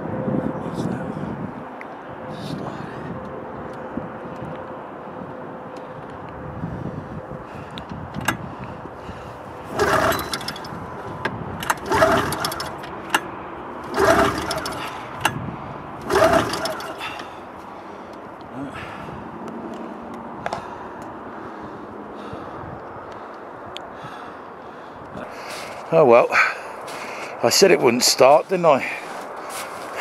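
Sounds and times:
engine pull-starter whirring: 9.6 - 10.9, 11.6 - 15.4, 16.0 - 17.4.

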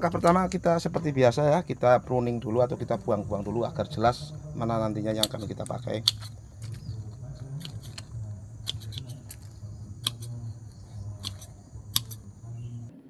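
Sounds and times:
steady low hum: 0.0 - 13.0
pruning shears snipping twigs: 5.0 - 12.4.

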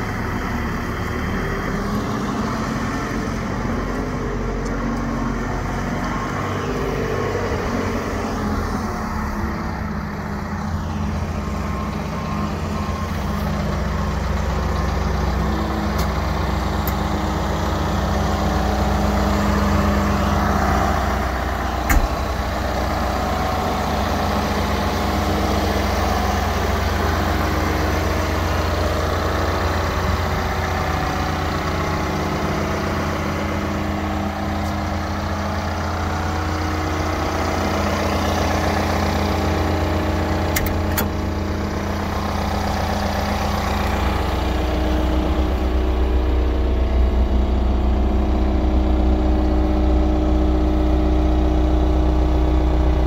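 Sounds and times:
diesel engine running at low revs: 0.0 - 53.0.

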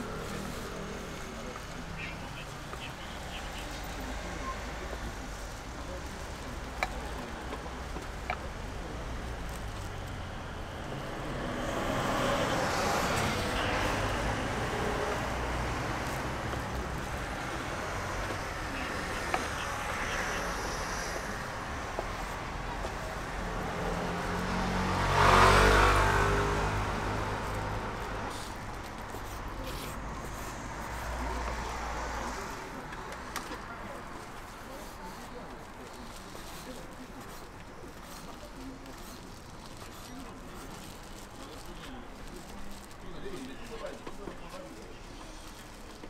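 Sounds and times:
cars passing by: 0.0 - 46.0
low traffic rumble: 0.0 - 46.0.

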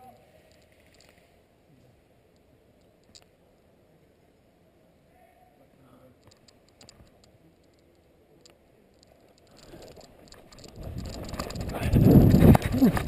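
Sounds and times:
clicks and rustling in grass: 6.2 - 13.0.

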